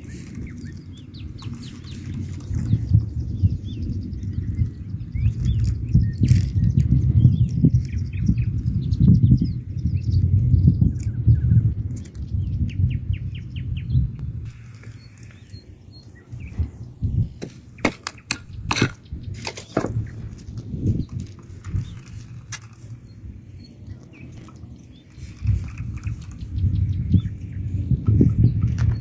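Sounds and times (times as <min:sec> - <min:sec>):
faint bird chirps: 0:00.0 - 0:20.3, 0:20.9 - 0:29.0
low rumble: 0:02.4 - 0:17.8.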